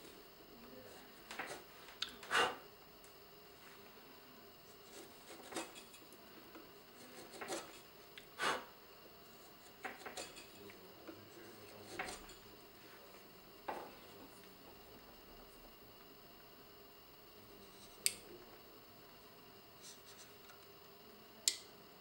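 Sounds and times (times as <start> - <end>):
carving tool scraping wood: 1.3 - 2.6, 4.8 - 6.0, 7.0 - 7.8.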